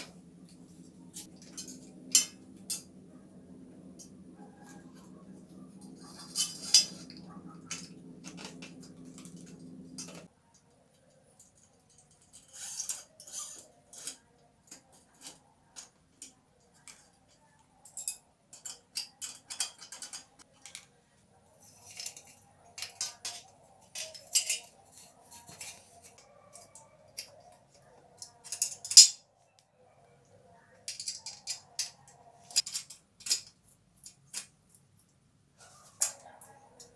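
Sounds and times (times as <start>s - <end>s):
steady low hum: 0.0s - 10.3s.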